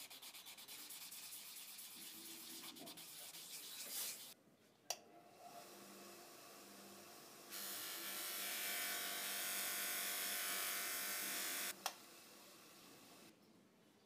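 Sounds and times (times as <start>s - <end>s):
polisher motor hum: 5.6s - 11.7s.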